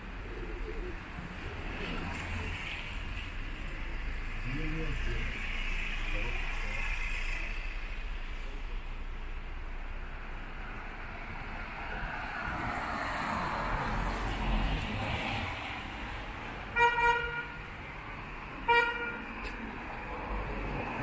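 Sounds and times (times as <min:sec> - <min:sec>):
traffic on a wet road: 0:00.0 - 0:21.0
vehicle horn beeps: 0:16.8 - 0:17.6, 0:18.7 - 0:19.2.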